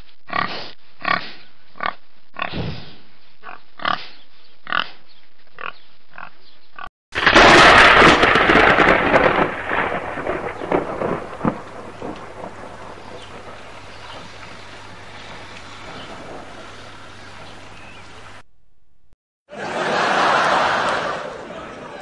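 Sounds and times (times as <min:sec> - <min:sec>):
pig grunting: 0:00.3 - 0:05.0
thunderclap rumbling: 0:07.2 - 0:17.5.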